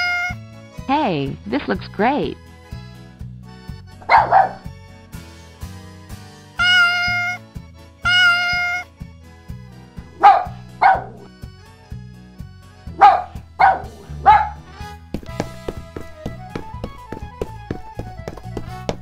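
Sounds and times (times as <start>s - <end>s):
cat meowing: 0.0s - 0.4s, 6.6s - 7.4s, 8.1s - 8.9s
light background music: 0.0s - 19.0s
dog barking: 4.0s - 4.7s, 10.1s - 11.3s, 13.0s - 14.7s.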